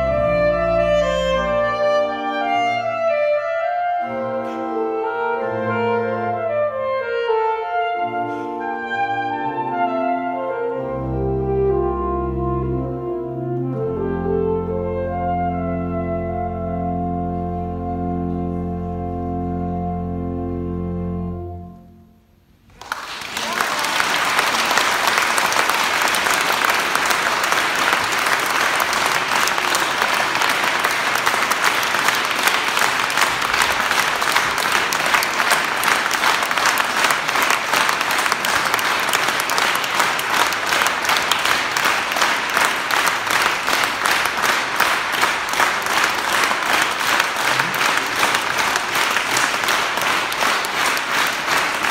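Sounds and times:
audience applauding: 22.7s - 51.9s.

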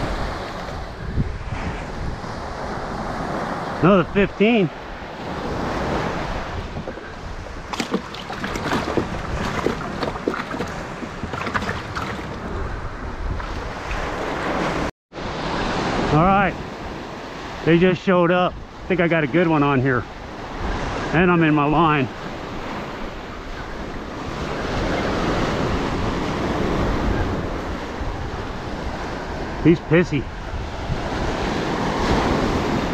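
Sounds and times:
surf: 0.0s - 32.9s
wind: 0.0s - 32.9s
plastic cooler knocks and squeaks: 6.7s - 12.4s.

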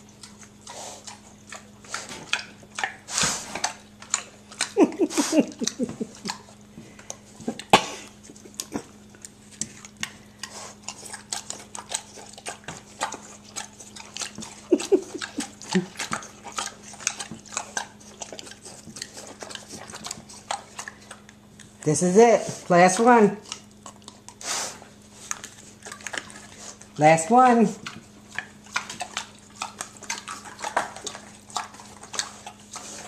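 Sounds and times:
pigs smacking and chomping: 0.0s - 33.0s.

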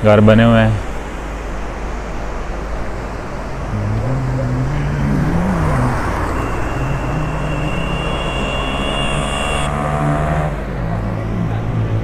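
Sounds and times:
street traffic: 0.0s - 12.0s
vehicle engine running: 3.0s - 11.7s
thin high steady tone: 4.8s - 9.7s.

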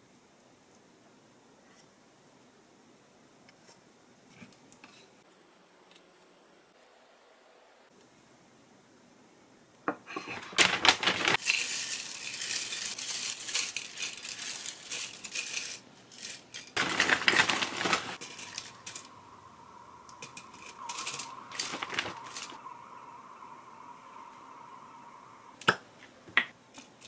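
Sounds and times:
cornflakes rattling onto a plate: 10.5s - 19.1s.

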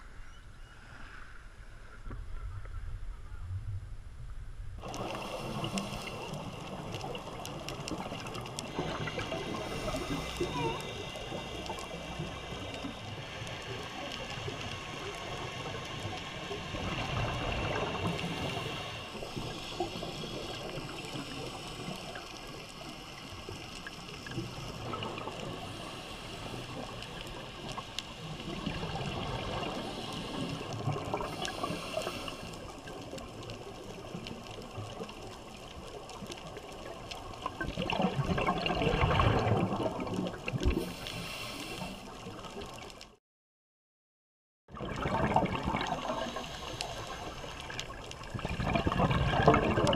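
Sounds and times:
scuba regulator breathing: 4.9s - 6.6s, 8.7s - 12.0s, 18.0s - 22.3s, 29.5s - 32.8s, 40.7s - 42.2s, 46.0s - 47.8s
bubbles gurgling: 16.4s - 21.6s, 36.5s - 40.9s, 44.7s - 49.9s.

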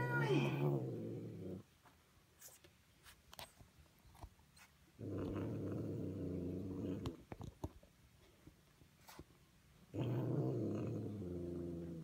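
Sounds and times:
kitten growling: 0.0s - 1.7s, 5.0s - 7.2s, 9.9s - 12.0s.

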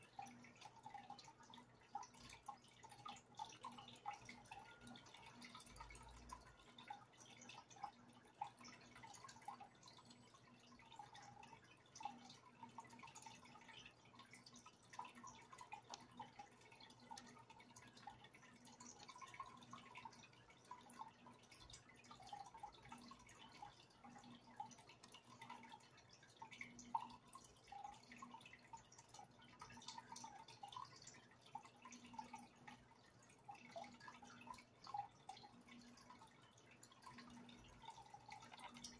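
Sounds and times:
low steady hum: 0.0s - 38.9s
water dripping and trickling: 0.0s - 38.9s.

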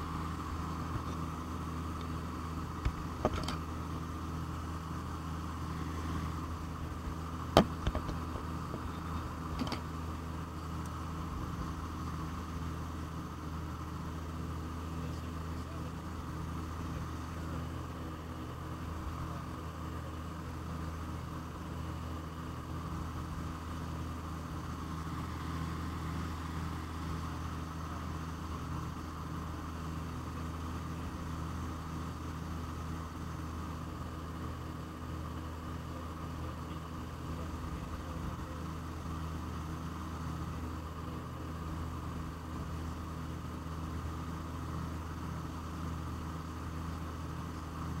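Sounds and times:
aircraft engines droning: 0.0s - 48.0s.

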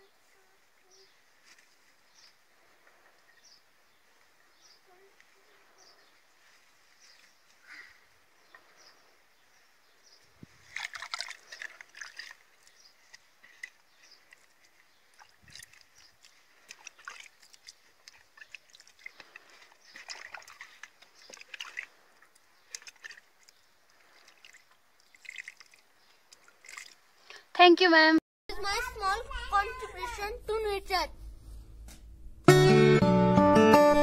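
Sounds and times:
hands rustling soil and dry leaves: 3.9s - 26.6s.

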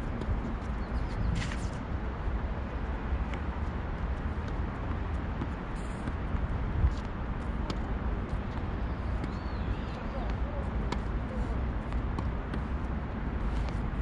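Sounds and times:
tennis balls struck by rackets: 4.4s - 11.2s, 11.8s - 12.8s.

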